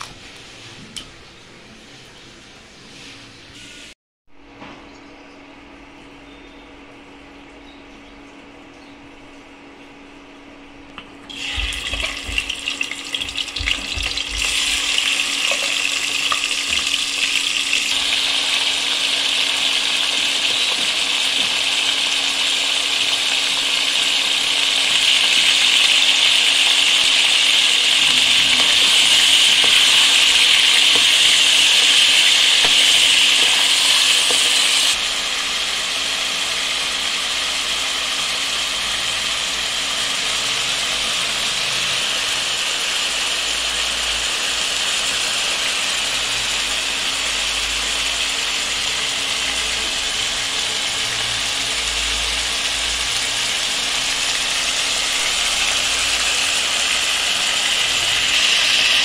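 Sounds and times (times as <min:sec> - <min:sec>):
chicken sizzling in hot oil: 0:11.2 - 0:59.0.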